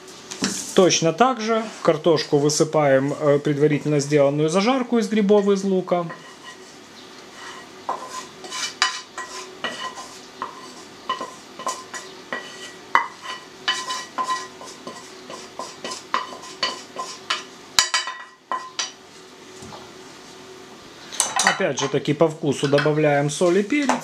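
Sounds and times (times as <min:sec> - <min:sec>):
spatula scraping frying pan: 0:05.4 - 0:19.0.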